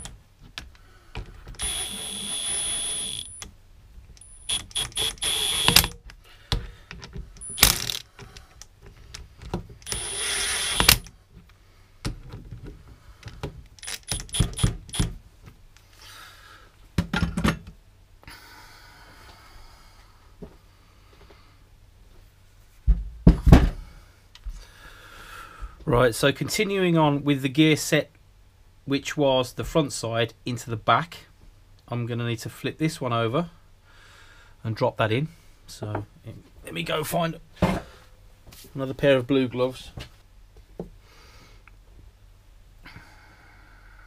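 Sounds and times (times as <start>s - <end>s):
impact gun whining: 0.0s - 0.2s, 1.4s - 3.5s, 4.1s - 6.7s, 7.4s - 8.2s, 9.8s - 11.1s, 13.7s - 15.2s
tool and bolts clicking and clanking: 4.1s - 11.1s, 13.2s - 15.2s.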